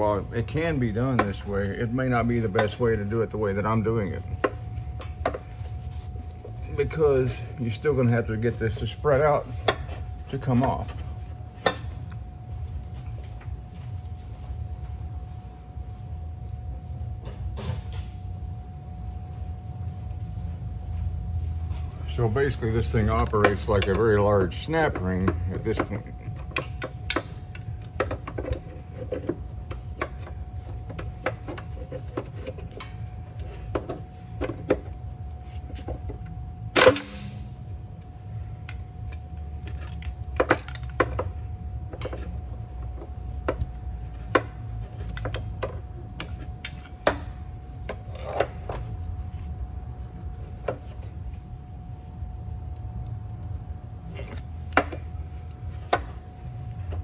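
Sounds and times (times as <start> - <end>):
faint whine: 0.0 - 57.0
low hum: 0.0 - 57.0.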